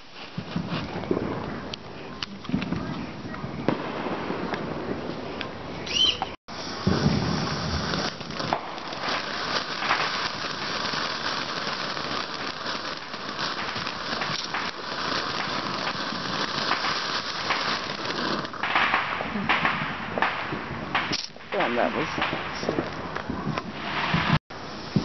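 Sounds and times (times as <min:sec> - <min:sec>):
firework hissing and crackling: 0:00.0 - 0:25.0.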